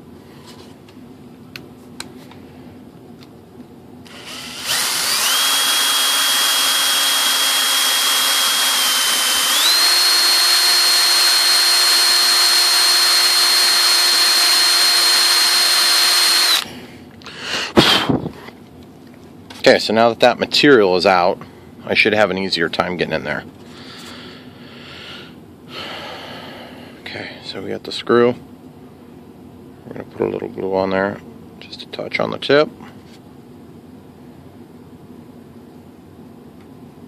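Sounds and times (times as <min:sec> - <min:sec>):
electric hand drill whining: 0:04.1 - 0:16.7.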